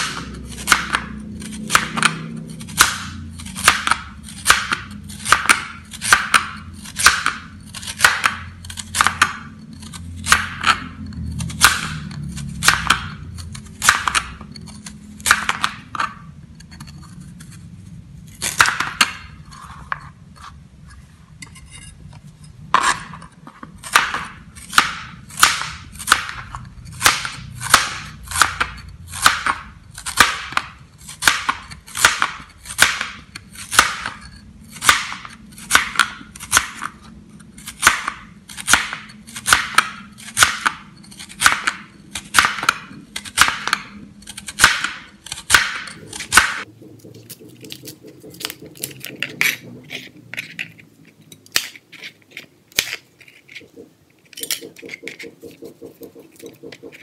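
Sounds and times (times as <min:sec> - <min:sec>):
knife chopping carrot on board: 0:00.0 - 0:09.5, 0:11.5 - 0:13.2, 0:13.8 - 0:14.4, 0:23.8 - 0:34.2, 0:37.7 - 0:50.5, 0:53.7 - 0:57.0.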